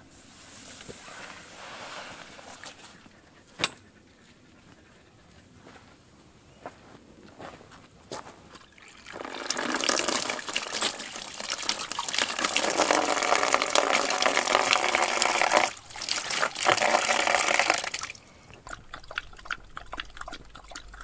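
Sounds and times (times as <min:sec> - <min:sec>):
water running and splashing: 0:08.7 - 0:21.0
dog lapping water: 0:08.8 - 0:21.0.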